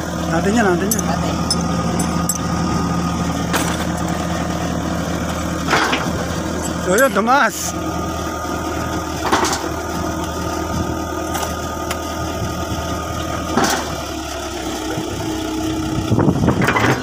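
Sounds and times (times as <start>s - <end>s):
diesel engine running: 0.0s - 17.0s
metal clanks: 0.8s - 2.5s, 3.5s - 4.2s, 5.7s - 7.2s.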